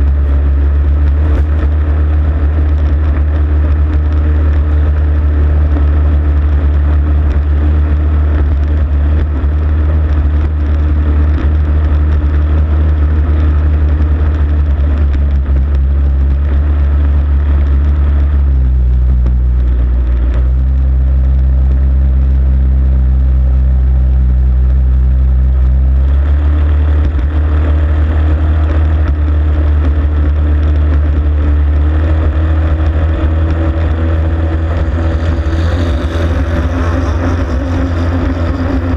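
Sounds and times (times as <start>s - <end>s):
racing boat engine running hard: 0.0s - 38.9s.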